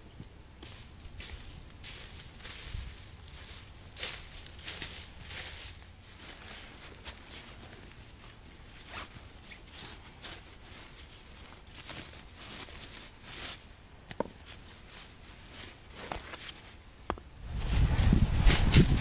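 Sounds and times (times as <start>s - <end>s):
nylon bag rustling: 4.6s - 13.7s.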